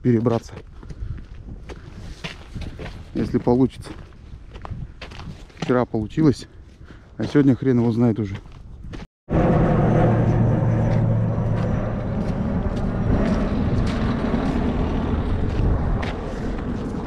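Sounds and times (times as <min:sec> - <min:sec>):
airplane jet rumble overhead: 0:09.3 - 0:17.0.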